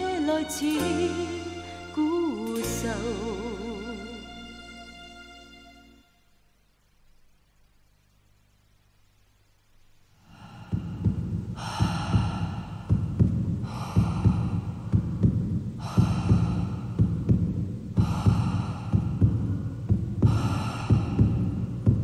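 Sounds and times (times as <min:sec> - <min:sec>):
low throbbing pulse: 0:10.3 - 0:22.0.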